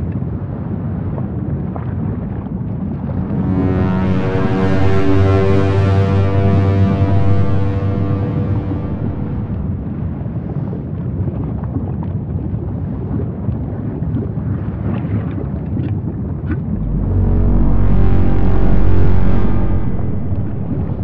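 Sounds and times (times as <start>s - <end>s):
background music: 3.0s - 10.2s, 16.8s - 21.0s.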